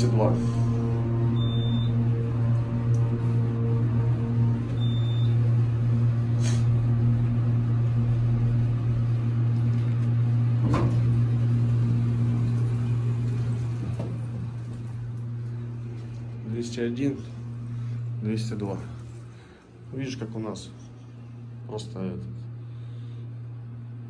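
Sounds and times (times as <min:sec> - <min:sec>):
elevator humming: 0:00.0 - 0:24.0
elevator thump: 0:10.6 - 0:11.2.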